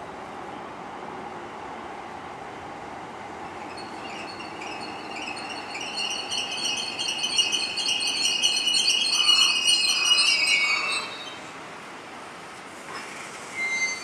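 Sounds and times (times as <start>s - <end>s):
train rolling rumble: 0.0s - 14.0s
train brakes squealing: 3.6s - 11.7s, 12.9s - 14.0s.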